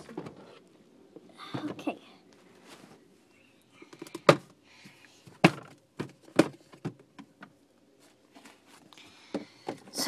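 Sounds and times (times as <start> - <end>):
plastic box clacks and knocks: 3.9 - 4.5, 5.4 - 7.6.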